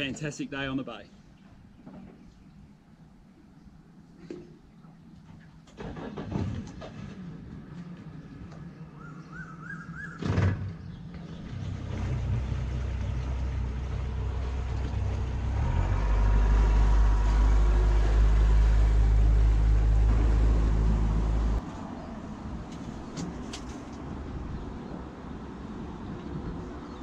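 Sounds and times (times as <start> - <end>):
outboard motor running: 10.9 - 21.6.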